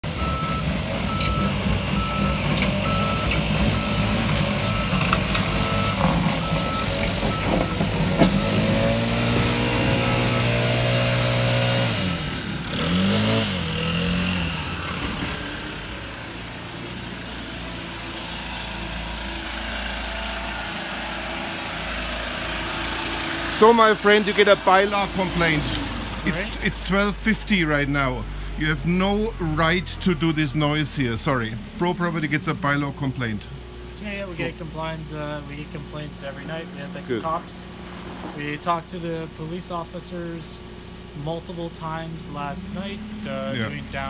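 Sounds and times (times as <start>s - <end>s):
truck reversing alarm beeping: 0.0s - 10.9s.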